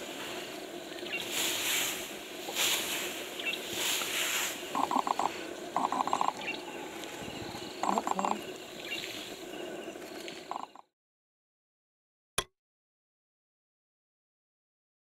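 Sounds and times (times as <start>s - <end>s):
rustling hiss: 0.0s - 10.8s
rapid trilling call: 0.4s - 10.8s.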